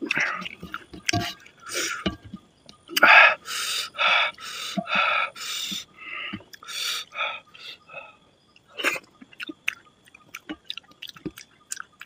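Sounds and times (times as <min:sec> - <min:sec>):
man eating with noisy slurps: 0:00.0 - 0:02.2.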